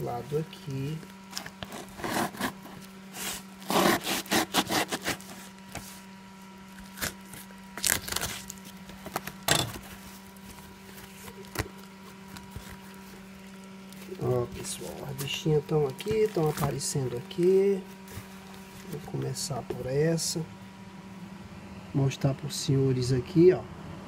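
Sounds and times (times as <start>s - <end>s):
tape and cardboard ripping: 1.3s - 6.0s, 6.7s - 16.9s
knife slitting tape: 1.4s - 5.8s, 6.8s - 9.8s.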